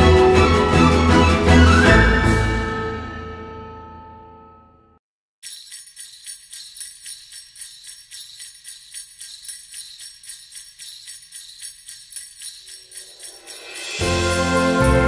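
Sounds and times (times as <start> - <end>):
sleigh bells shaken: 5.4 - 15.0.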